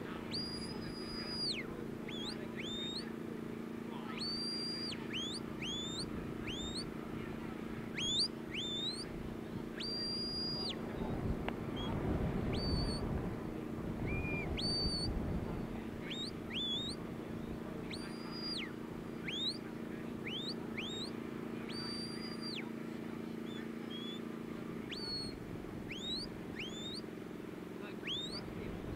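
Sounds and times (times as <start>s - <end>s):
low steady hum: 0.0s - 28.9s
high whistles: 0.3s - 3.1s, 4.1s - 6.9s, 7.9s - 9.1s, 9.8s - 10.8s, 11.8s - 13.1s, 14.0s - 15.1s, 16.0s - 17.0s, 17.8s - 22.7s, 23.4s - 24.3s, 24.9s - 27.0s, 28.0s - 28.4s
wind rumble: 5.4s - 19.3s.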